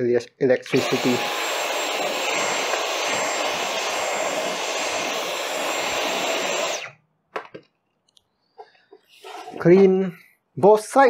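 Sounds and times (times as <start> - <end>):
cordless vacuum running: 0.7 - 7.0.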